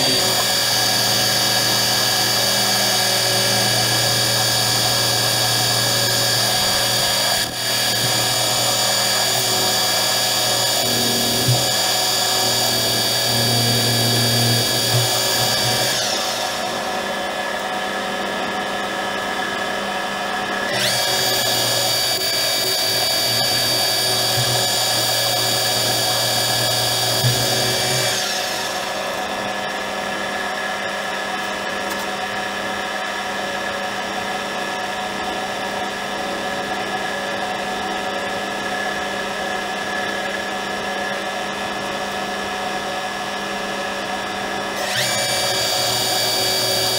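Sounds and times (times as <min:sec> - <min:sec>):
lathe cutting metal grinding: 0:00.0 - 0:18.2, 0:20.6 - 0:29.9, 0:44.8 - 0:46.9
lathe machine whine: 0:00.0 - 0:46.9.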